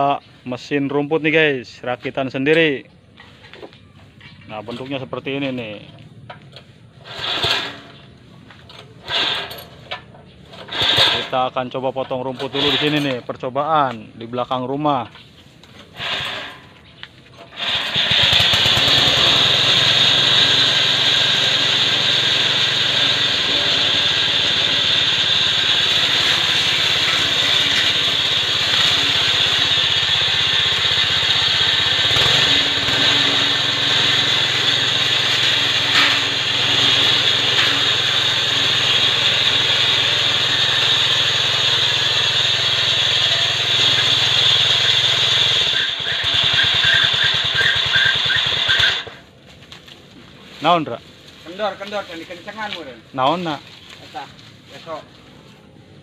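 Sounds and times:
lawn mower engine running: 0:06.1 - 0:11.3, 0:12.3 - 0:13.2, 0:15.8 - 0:49.4
blade cutting long grass: 0:17.5 - 0:49.2.

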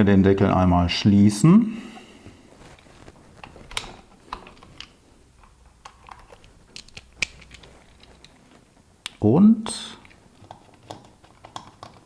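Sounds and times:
plastic parts clicking: 0:03.4 - 0:09.2, 0:10.0 - 0:12.0.

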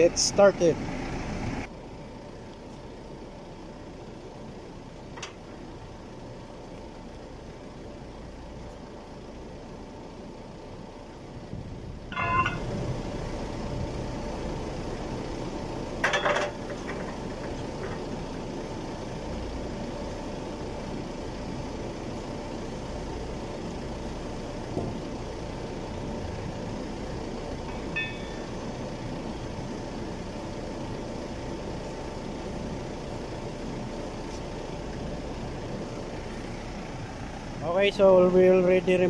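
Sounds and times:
forklift engine idling: 0:00.0 - 0:39.0
light metal knocks and rings: 0:12.1 - 0:12.7
steel fork clanging: 0:12.1 - 0:12.8, 0:16.0 - 0:18.0, 0:27.7 - 0:28.6.

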